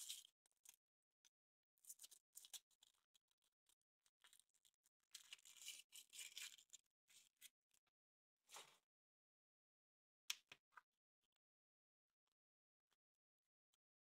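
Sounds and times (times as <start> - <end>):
crinkly wrapper rustling: 4.2 - 7.2.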